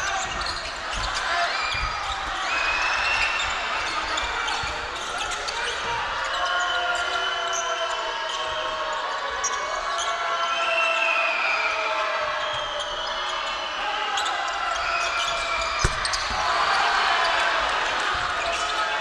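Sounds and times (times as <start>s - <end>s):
sneakers squeaking: 0.0s - 6.4s, 12.4s - 19.0s
crowd noise: 0.0s - 19.0s
basketball bouncing: 15.8s - 16.8s.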